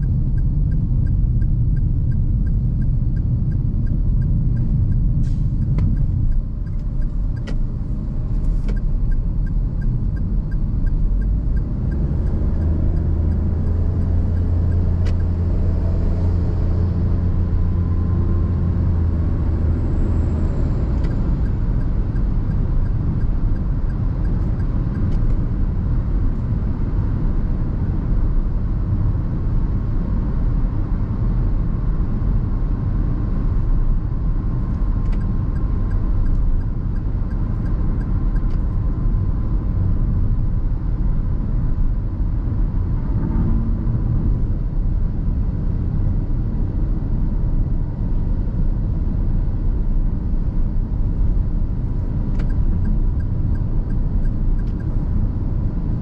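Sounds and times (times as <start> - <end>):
car engine and road rumble: 0.0 - 56.0.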